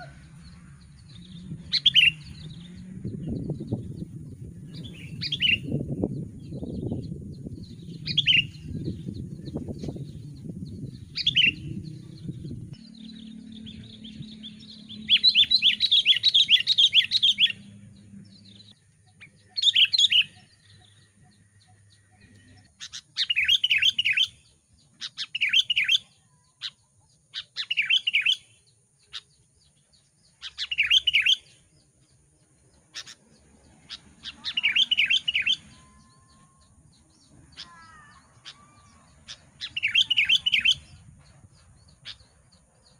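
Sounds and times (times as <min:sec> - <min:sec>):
low rumbling noise: 0:00.0 - 0:18.9
bird singing bubbly phrases: 0:00.0 - 0:24.4, 0:30.4 - 0:31.5, 0:33.0 - 0:41.0.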